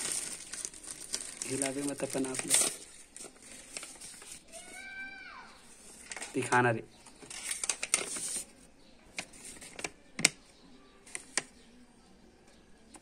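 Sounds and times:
paper crinkles and clicks: 0.0 - 4.9, 5.7 - 10.4, 11.0 - 11.6
paper rustling: 0.0 - 10.4.

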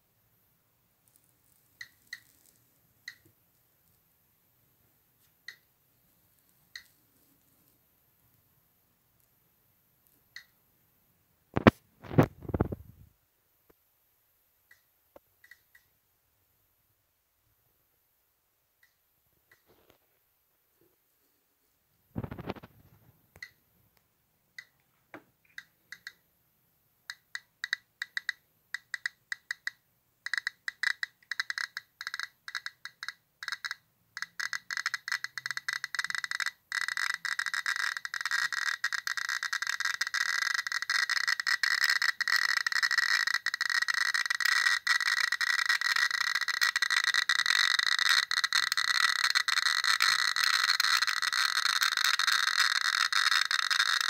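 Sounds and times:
geiger counter clicking: 1.8 - 3.4, 6.6 - 7.0, 10.3 - 10.6, 14.7 - 15.9, 23.3 - 23.6, 24.6 - 26.3, 27.0 - 54.0.

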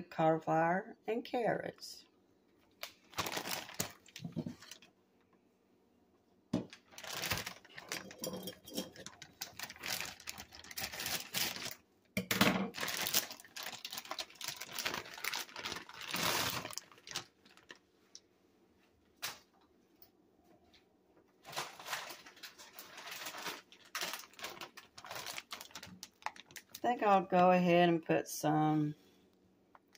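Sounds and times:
plastic bag crinkling: 2.7 - 4.9, 6.6 - 11.8, 12.7 - 18.2, 21.4 - 27.2
frozen vegetables clattering into pot: 3.1 - 4.8, 6.6 - 17.8, 21.4 - 26.8.

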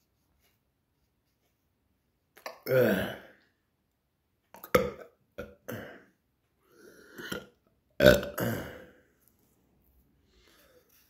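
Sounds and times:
man burping: 2.4 - 3.4, 4.7 - 6.2, 7.1 - 9.0.

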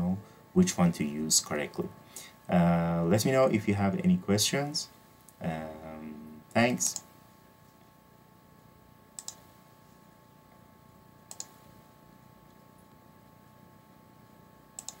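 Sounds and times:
faint electrical hum: 0.0 - 15.0
computer mouse clicking: 9.2 - 9.4, 11.3 - 11.6, 14.8 - 15.0.

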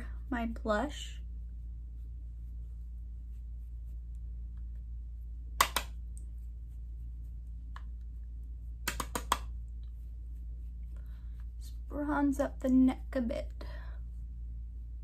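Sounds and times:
low hum: 0.0 - 15.0
brush tapping plastic compact: 8.8 - 9.6.

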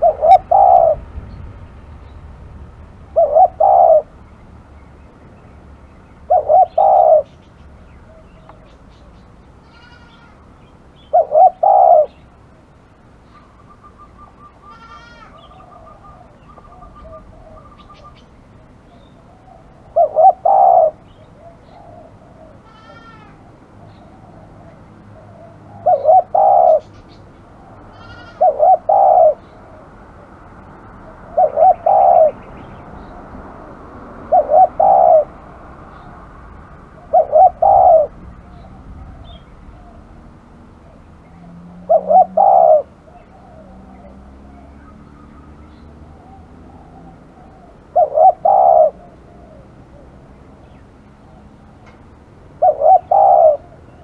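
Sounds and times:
dove cooing: 0.0 - 1.1, 3.1 - 4.2, 6.2 - 10.4, 11.1 - 12.2, 13.3 - 27.0, 27.6 - 30.0, 30.8 - 44.9, 45.7 - 50.5, 52.6 - 54.0
faint bird chirps: 13.2 - 29.8.

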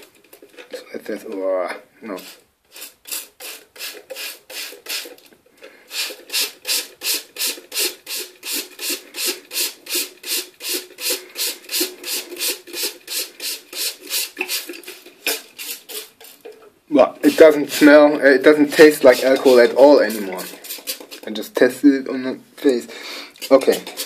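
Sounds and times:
hand pump hissing strokes: 2.2 - 5.2, 5.9 - 16.5, 17.2 - 21.4.

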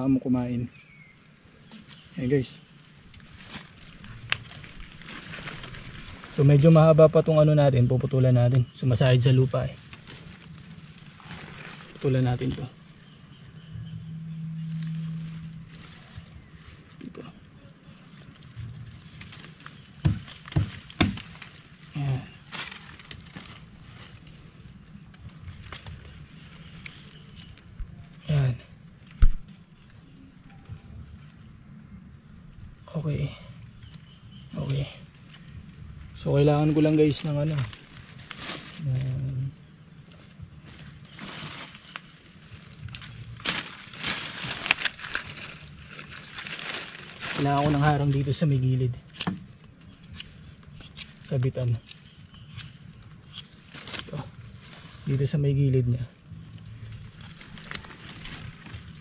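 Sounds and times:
rustling leaves and knocks: 0.0 - 59.0
twigs snapping: 1.7 - 6.9, 9.6 - 30.2, 33.7 - 39.4, 40.1 - 55.2, 56.2 - 59.0
machete chopping wood: 20.0 - 21.3.

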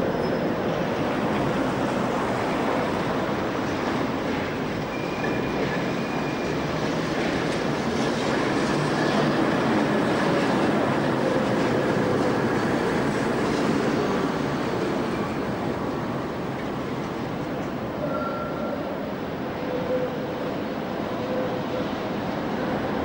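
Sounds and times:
tram wheels rumbling on rails: 0.0 - 23.0
high wheel squeal: 4.9 - 6.7, 18.0 - 18.9.

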